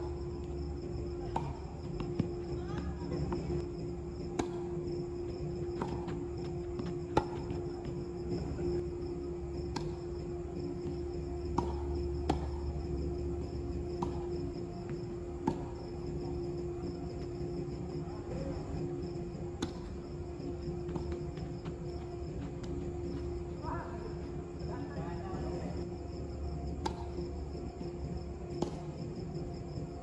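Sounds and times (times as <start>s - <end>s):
constant low hum: 0.0s - 30.0s
crickets chirring: 0.0s - 30.0s
tennis ball struck by racquets: 4.2s - 4.8s, 9.7s - 10.0s, 11.5s - 12.8s, 19.6s - 20.0s, 26.7s - 27.2s, 28.6s - 28.9s.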